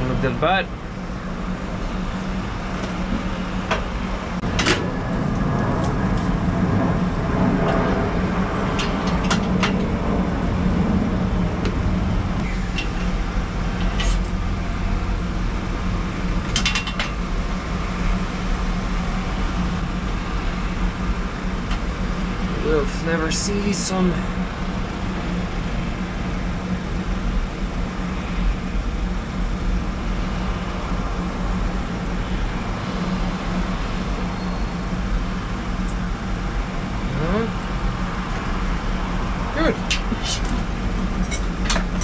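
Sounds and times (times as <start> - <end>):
steady mechanical hum: 0.0 - 42.0.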